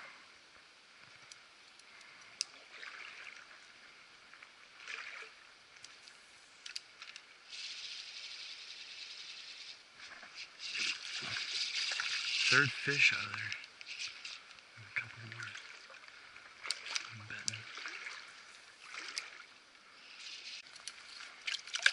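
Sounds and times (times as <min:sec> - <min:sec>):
creek trickling: 0:00.9 - 0:21.9
steady hiss: 0:05.8 - 0:15.6, 0:19.7 - 0:21.4.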